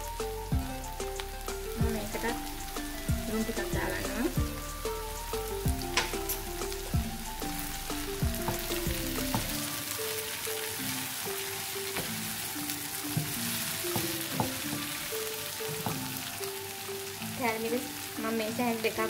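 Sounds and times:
background music with plucked melody: 0.0 - 19.0
vegetables sizzling in oil: 0.0 - 19.0
wooden spatula stirring: 1.1 - 16.3.

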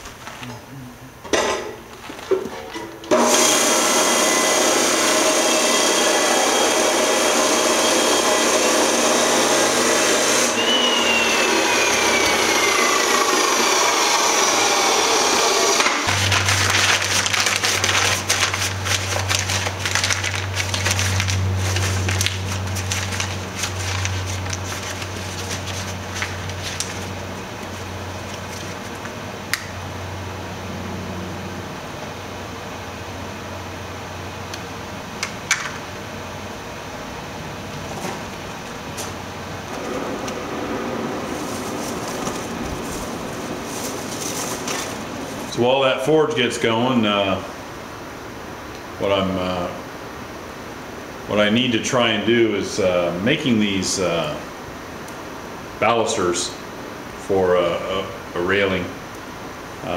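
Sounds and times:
crackling and rustling: 0.0 - 0.7, 16.1 - 29.3, 37.8 - 45.7
chop saw running: 3.1 - 17.8
low hum: 10.6 - 33.6, 38.5 - 45.8.

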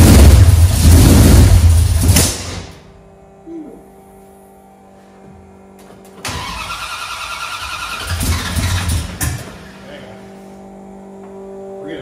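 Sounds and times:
engine sputtering: 0.0 - 2.7, 6.2 - 10.2
engine cranking over by starter: 6.2 - 9.9.

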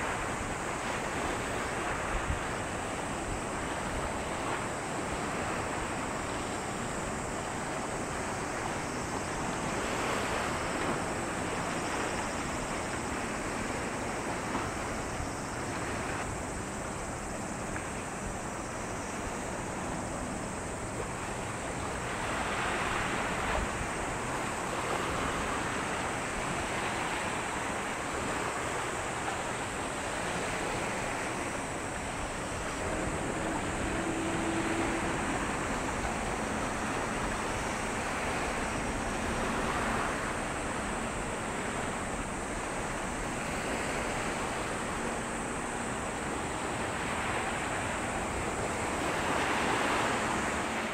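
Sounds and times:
sea waves surging: 0.0 - 50.9
wind: 0.0 - 50.9.

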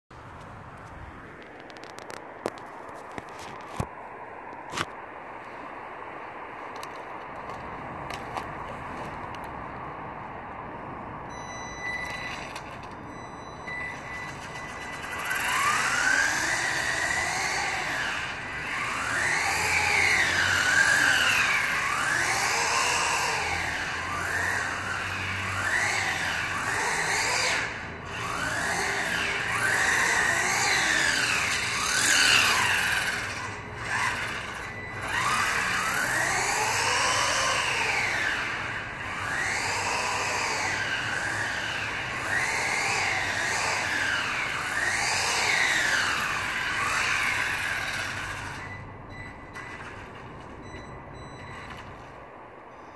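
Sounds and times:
toy car electric motor whining: 11.8 - 48.9, 49.5 - 50.4.

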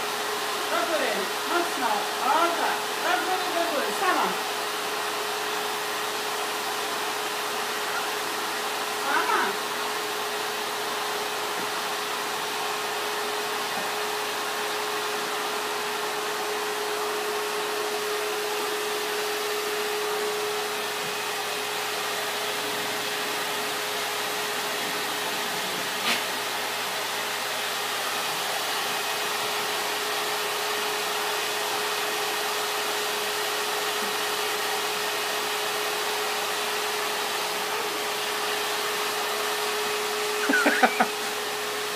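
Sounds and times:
appliance whirring hum: 33.8 - 41.9.

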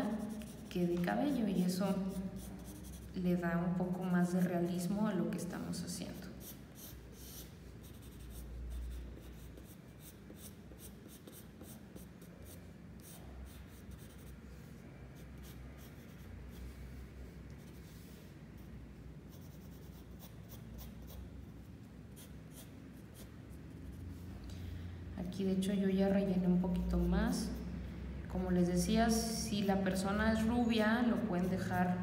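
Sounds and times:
pencil scratching on paper: 0.0 - 3.2, 6.1 - 14.4, 15.1 - 16.8, 17.6 - 21.3, 22.1 - 24.0.

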